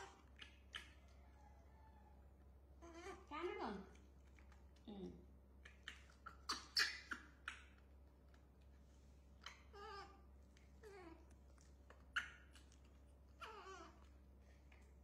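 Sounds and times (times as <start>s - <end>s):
baby monkey squeaking: 5.7s - 7.8s.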